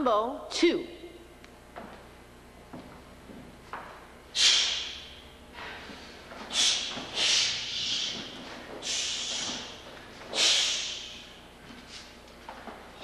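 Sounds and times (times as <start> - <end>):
sharp hissing exhalations: 4.3 - 5.0, 6.5 - 12.1.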